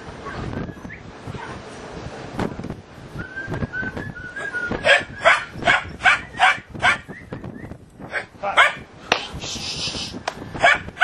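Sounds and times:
puppies yapping: 0:04.8 - 0:07.2.

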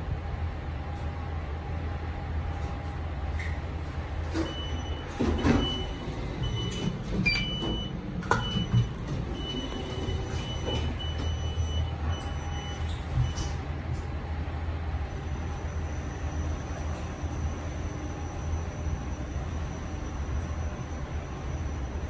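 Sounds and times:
lift humming: 0:03.7 - 0:14.8
lift clunks and clicks: 0:04.3 - 0:14.1.

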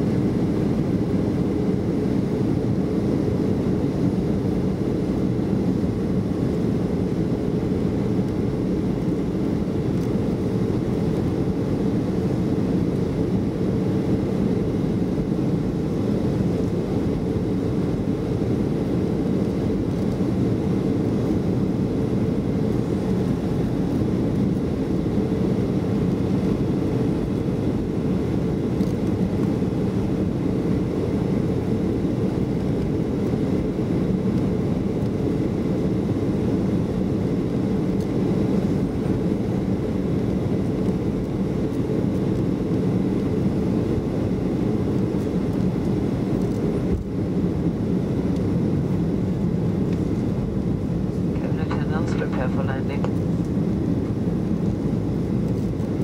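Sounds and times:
faint steady whine: 0:00.0 - 0:56.0
airplane cabin rush: 0:51.2 - 0:53.2.

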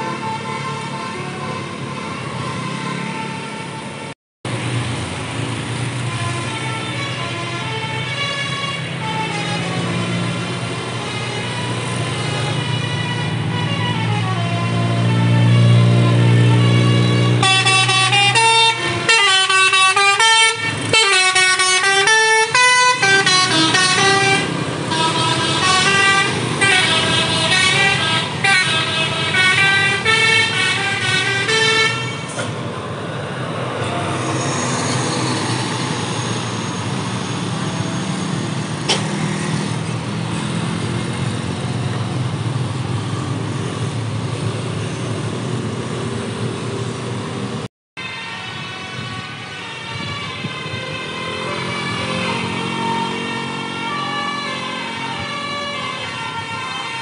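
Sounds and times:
bus engine: 0:00.0 - 0:57.0
traffic noise: 0:00.0 - 0:57.0
bus air horn melody: 0:06.0 - 0:32.5, 0:48.0 - 0:57.0.

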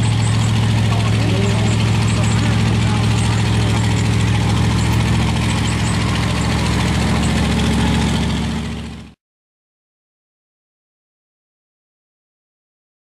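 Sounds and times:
truck engine running at low revs: 0:00.0 - 0:09.2.

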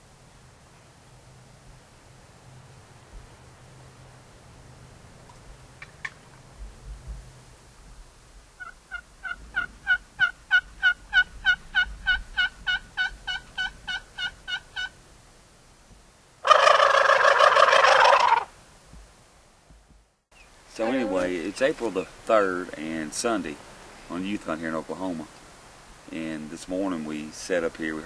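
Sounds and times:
turkey gobble: 0:08.6 - 0:14.9, 0:16.4 - 0:18.5
turkey yelping: 0:08.6 - 0:14.9, 0:16.4 - 0:18.5.

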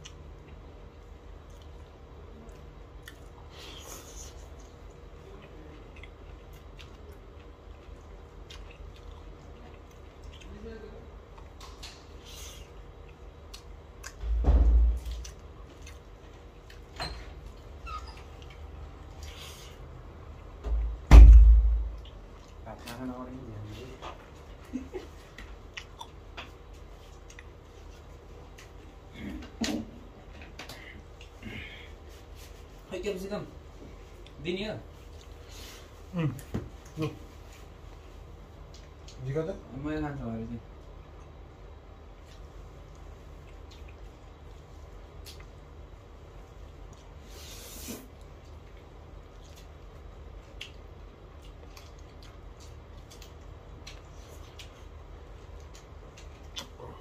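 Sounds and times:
chewing and mouth clicks: 0:00.0 - 0:14.3, 0:15.0 - 0:19.4, 0:21.9 - 0:23.0, 0:24.0 - 0:29.6, 0:30.5 - 0:31.4, 0:35.0 - 0:35.4, 0:38.6 - 0:39.3, 0:42.0 - 0:47.3, 0:48.1 - 0:57.0
low steady hum: 0:00.0 - 0:57.0.

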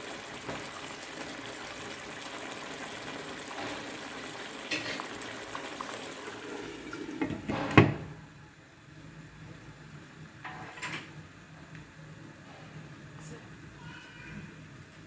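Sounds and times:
curry simmering and bubbling: 0:00.0 - 0:07.5.

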